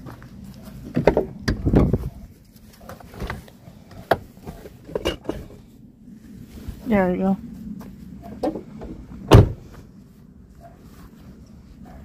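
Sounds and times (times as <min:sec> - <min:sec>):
knocks and rustling in truck: 0:00.8 - 0:02.1, 0:02.8 - 0:05.6, 0:07.8 - 0:09.9.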